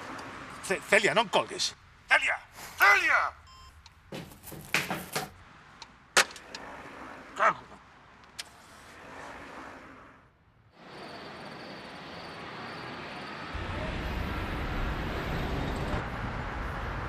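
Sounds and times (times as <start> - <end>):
steady traffic hum: 0.0 - 17.0
passing vehicle rumble: 5.3 - 17.0.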